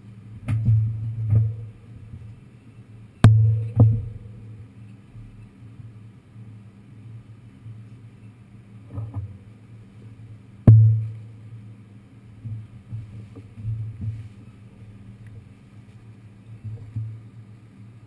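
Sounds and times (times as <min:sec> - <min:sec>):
soft knocks and thumps: 0:12.4 - 0:14.6, 0:16.6 - 0:17.2.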